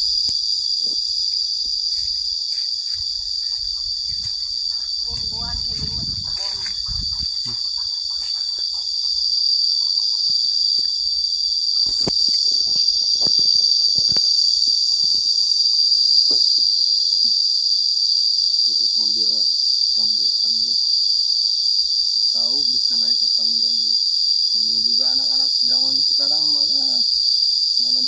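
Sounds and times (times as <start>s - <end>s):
cicadas droning: 0.0s - 28.0s
footsteps crunching through undergrowth: 0.9s - 8.8s.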